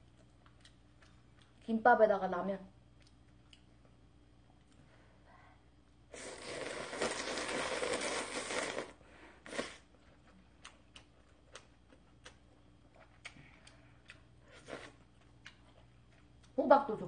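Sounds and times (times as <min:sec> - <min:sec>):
chewing: 0:00.0 - 0:01.7, 0:09.5 - 0:16.6
person slurping noodles: 0:06.1 - 0:09.8.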